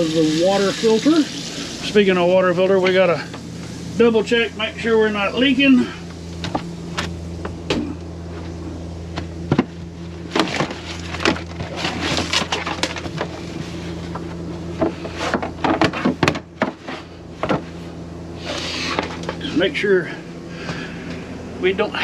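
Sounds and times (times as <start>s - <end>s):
steady low hum: 0.0s - 22.0s
hand rummaging in cabinet: 9.2s - 17.8s
paper towel rustling: 10.4s - 15.4s.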